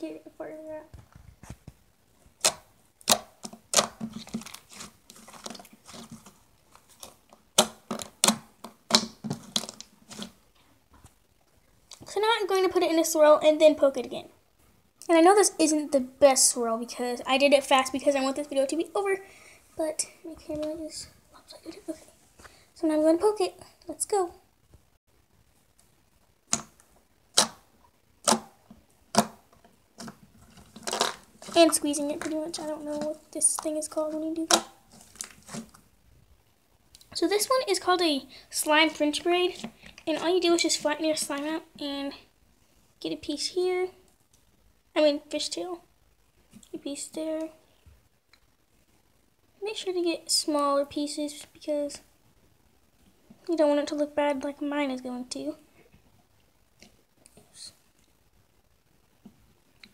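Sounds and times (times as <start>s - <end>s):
slime squishing in hands: 2.4s - 10.4s, 30.0s - 35.8s.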